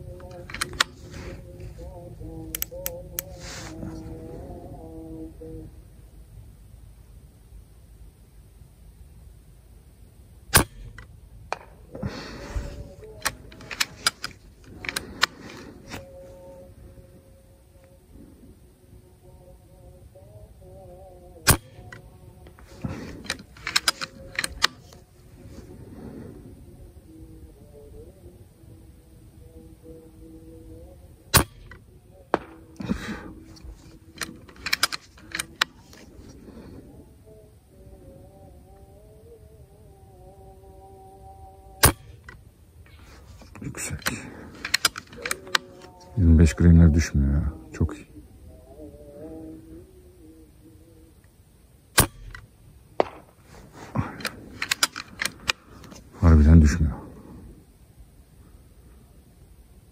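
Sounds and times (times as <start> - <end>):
handling noise: 0.0 - 4.5, 10.6 - 18.3, 21.5 - 26.8, 30.4 - 37.1, 41.8 - 46.2, 52.0 - 56.3
sharp clicks: 0.1 - 3.4, 12.7 - 16.7, 21.5 - 25.0, 31.3 - 36.0, 41.8 - 46.2, 52.0 - 56.1
air rifle shot: 10.5 - 11.8, 21.5 - 21.9, 31.3 - 33.3, 41.8 - 42.4, 51.9 - 55.6.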